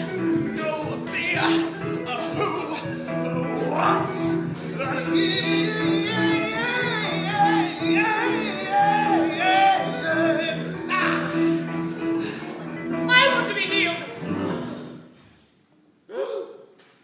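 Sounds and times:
man singing: 0.0s - 12.0s.

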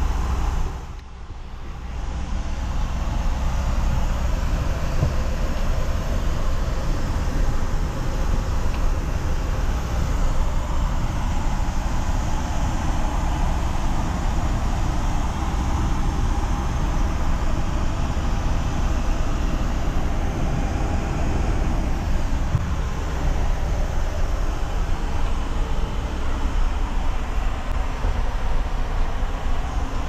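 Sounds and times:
airplane cabin rumble: 0.0s - 30.0s.

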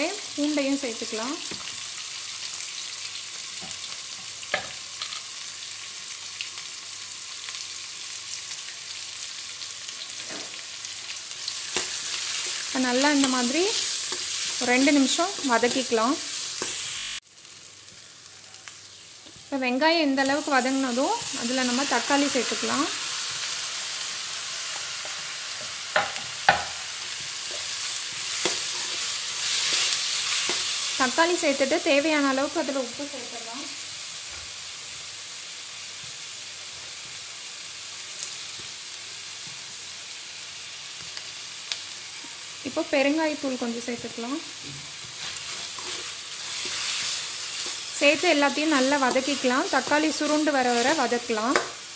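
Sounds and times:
onions sizzling in hot oil: 0.0s - 51.9s
spatula stirring: 26.0s - 30.8s, 45.0s - 50.9s.

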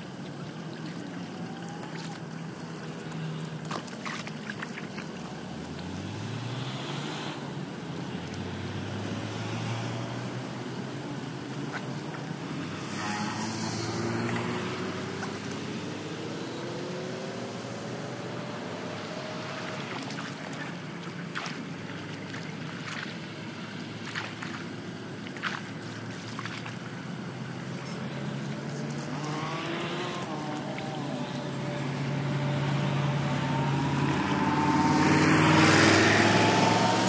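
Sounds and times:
feet splashing through water: 0.0s - 6.8s, 18.7s - 33.5s
distant engine: 0.0s - 37.0s
floodwater rushing in gutter: 0.0s - 37.0s.

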